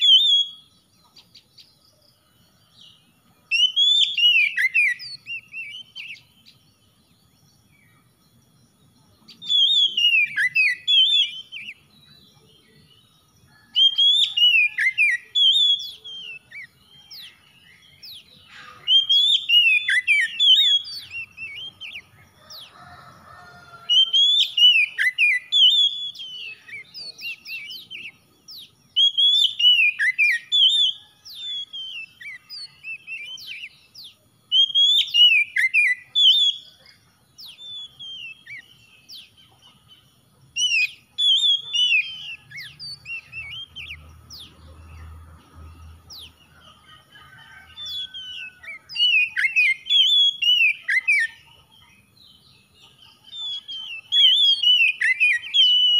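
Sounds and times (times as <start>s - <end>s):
bird singing whistled phrases: 0.0s - 0.8s, 3.5s - 6.6s, 9.3s - 22.2s, 23.9s - 39.7s, 40.6s - 44.0s, 47.5s - 51.5s, 52.8s - 55.9s.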